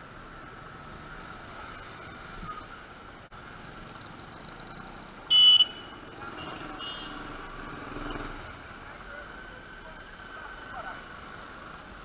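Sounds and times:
traffic noise: 0:00.0 - 0:12.0
high-pitched vehicle horn beeps: 0:05.3 - 0:07.2.

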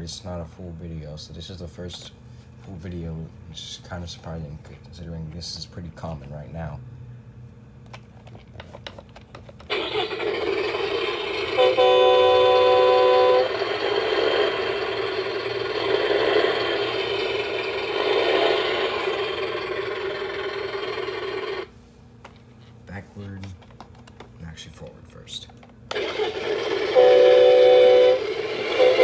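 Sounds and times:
toy horn honk: 0:09.7 - 0:20.6, 0:25.9 - 0:29.0
electronic toy engine sound: 0:09.7 - 0:21.7, 0:25.9 - 0:29.0.

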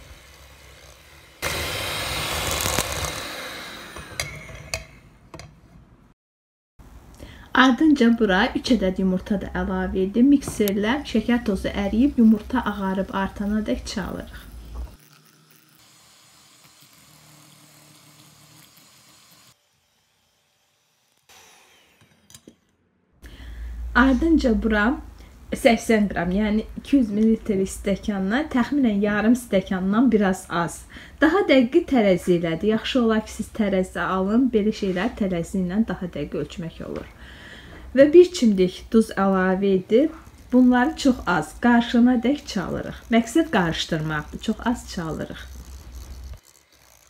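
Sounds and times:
electric hand mixer beating: 0:00.0 - 0:04.8, 0:40.2 - 0:47.0.

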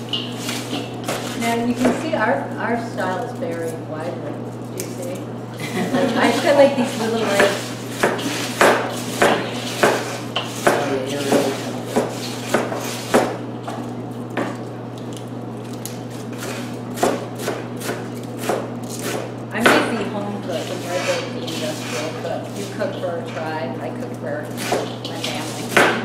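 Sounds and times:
steady low hum: 0:00.0 - 0:26.0
knife chopping on cutting board: 0:07.2 - 0:13.4, 0:16.4 - 0:19.9, 0:24.6 - 0:26.0.

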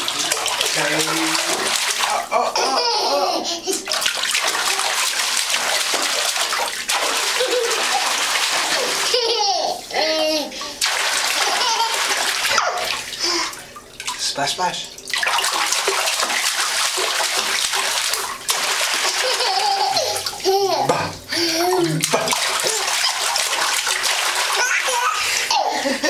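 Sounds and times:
bathwater splashing: 0:00.0 - 0:26.0
young child squealing: 0:12.5 - 0:12.9.

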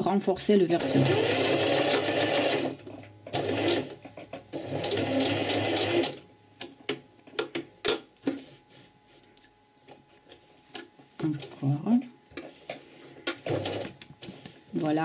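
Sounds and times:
sewing machine stitching: 0:00.8 - 0:03.9, 0:04.6 - 0:06.2, 0:13.4 - 0:13.9.

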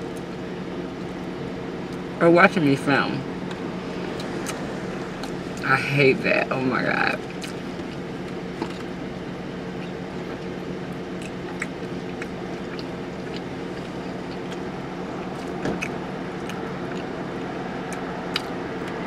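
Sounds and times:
car engine idling: 0:00.0 - 0:19.0
chewing clicks and smacks: 0:11.2 - 0:14.7.

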